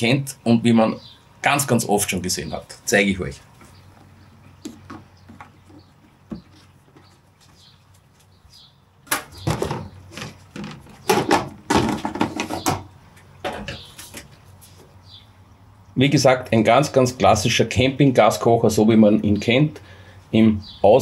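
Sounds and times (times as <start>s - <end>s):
scraping and knocking of plastic case: 9.4s - 14.3s.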